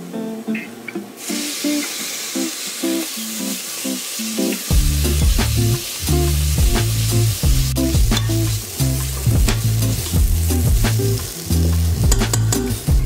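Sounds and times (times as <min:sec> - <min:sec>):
onions sizzling in oil: 0:01.1 - 0:13.0
background music with bass line: 0:04.7 - 0:13.0.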